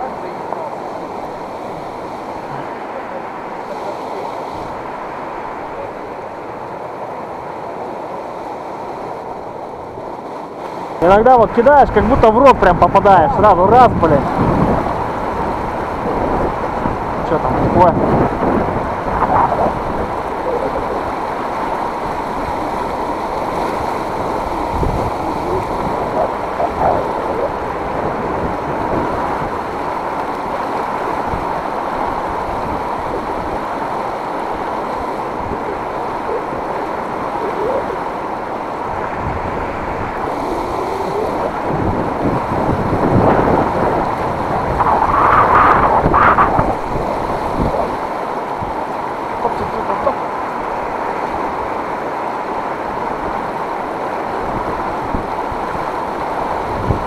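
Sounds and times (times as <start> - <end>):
river water rushing: 0.0 - 57.0
wind on microphone: 11.8 - 51.9, 52.7 - 57.0.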